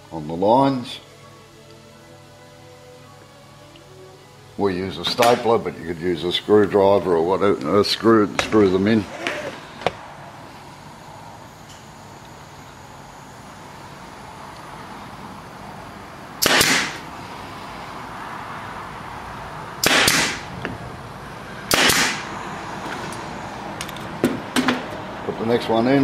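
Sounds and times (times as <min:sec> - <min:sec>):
pneumatic stapler firing: 0:09.1 - 0:09.6, 0:16.4 - 0:17.0, 0:19.8 - 0:20.5, 0:21.7 - 0:22.3.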